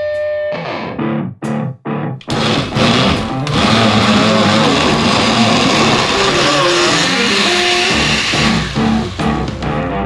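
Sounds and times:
rock music with electric guitar: 0.0 - 3.5, 4.6 - 10.0
blender running: 2.2 - 9.7.

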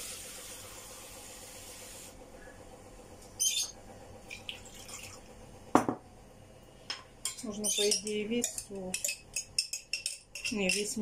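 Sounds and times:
water running into a bowl: 4.2 - 5.3.

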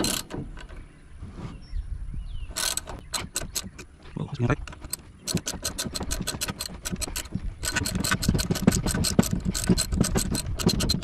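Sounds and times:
socket wrench ratchet clicking: 2.6 - 3.9, 4.7 - 11.0.

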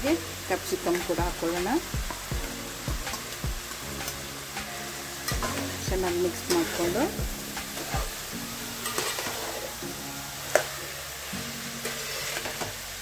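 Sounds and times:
food sizzling in a pan: 0.0 - 13.0
spoon scraping and tapping pan: 8.8 - 9.6.

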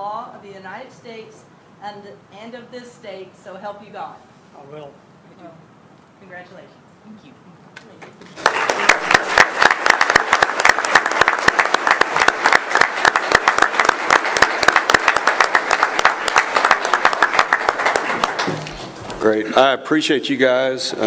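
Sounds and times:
audience applauding: 8.3 - 19.6.

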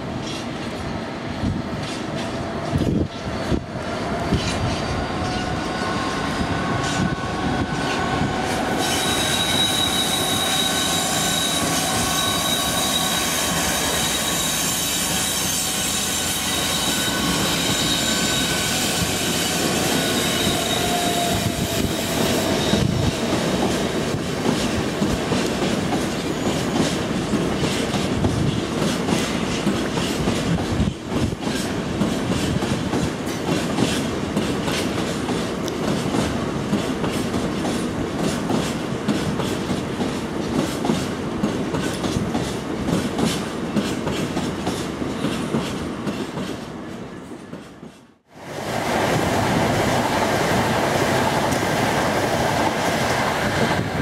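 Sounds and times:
high-pitched wheel squeal: 8.7 - 23.0.

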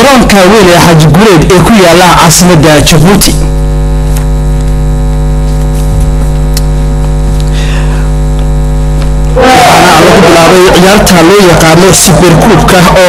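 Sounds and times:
man speaking: 0.0 - 3.5, 9.4 - 13.0
electrical mains hum: 0.0 - 13.0.

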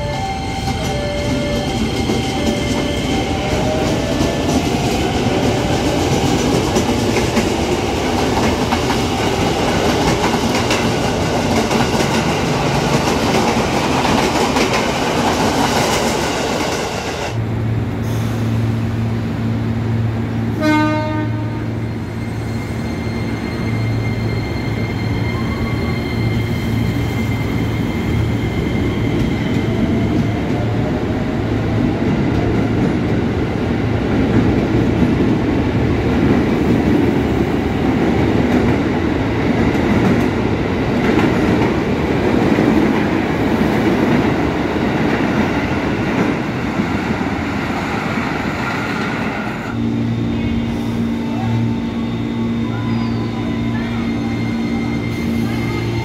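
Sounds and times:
train low hum: 0.0 - 56.0
train wheel rolling noise: 0.2 - 17.4
train horn blast: 20.5 - 21.8
electric train inverter whine: 45.3 - 56.0.

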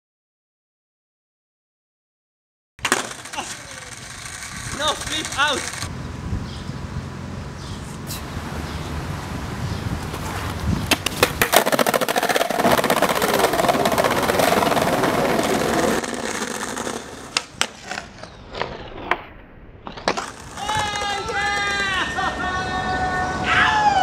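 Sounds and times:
skateboard clacking on ledge: 2.8 - 5.9, 10.9 - 18.3, 20.0 - 22.1
skateboard wheels clattering on bricks: 2.8 - 5.9, 10.2 - 18.9, 19.9 - 22.0.

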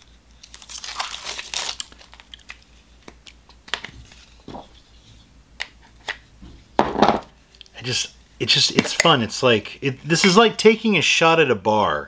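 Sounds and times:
plastic packaging crinkling: 0.4 - 4.8.

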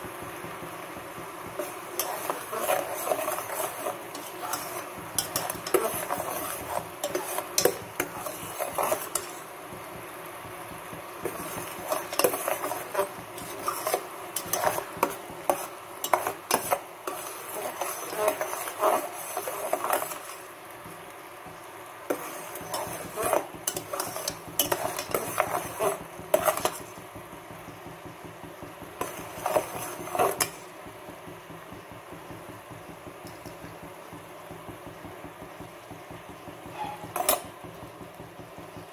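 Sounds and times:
faint steady hiss: 0.0 - 38.9
metal spoon scraping a pan: 1.6 - 9.5, 11.2 - 20.5, 22.1 - 27.1, 29.0 - 30.7, 36.6 - 37.9.

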